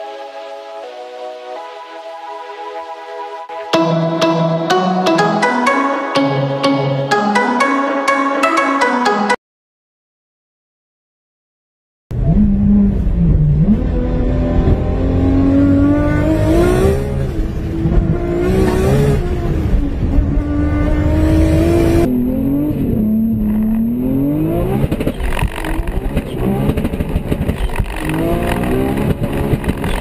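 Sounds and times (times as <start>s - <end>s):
car engine accelerating hard: 12.1s - 30.0s
second car engine accelerating: 12.1s - 30.0s.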